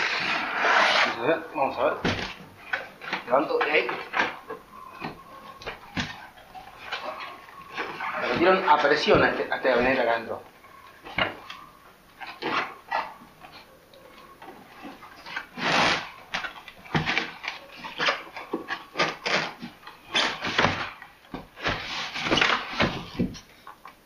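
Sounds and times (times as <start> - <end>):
foam and plastic scraping cardboard: 0.0 - 6.2, 6.8 - 10.4, 14.6 - 23.5.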